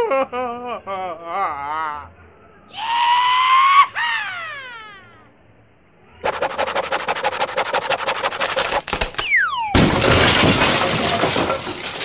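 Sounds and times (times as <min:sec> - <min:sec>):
falling whistle: 0:09.2 - 0:09.8.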